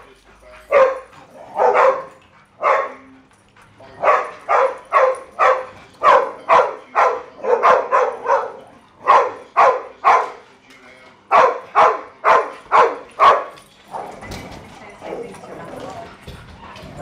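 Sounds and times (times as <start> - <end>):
dog barking: 0.6 - 3.1, 4.0 - 10.4, 11.3 - 14.2.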